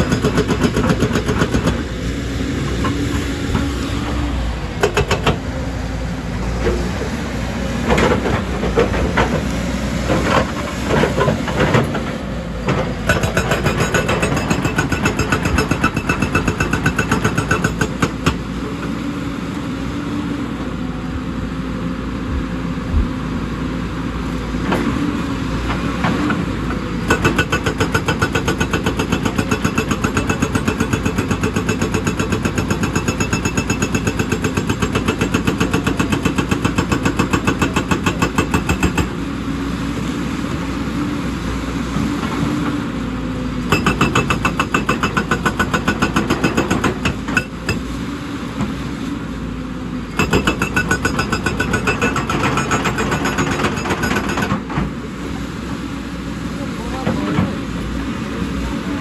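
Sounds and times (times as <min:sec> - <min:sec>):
hydraulic breaker hammering rock: 0:00.0 - 0:01.8, 0:04.8 - 0:05.4, 0:12.6 - 0:18.5, 0:27.0 - 0:39.2, 0:43.7 - 0:48.0, 0:50.1 - 0:55.0
diesel engine running: 0:00.0 - 0:33.0.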